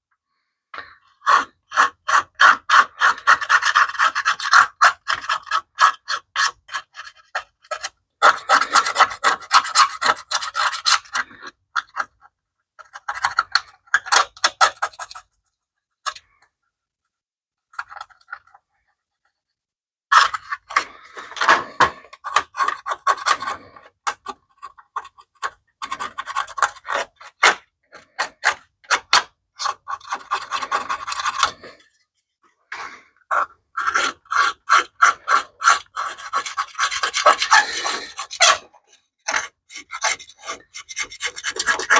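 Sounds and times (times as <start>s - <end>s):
hand tool scraping grime off metal: 1.2s - 12.1s, 33.3s - 41.9s.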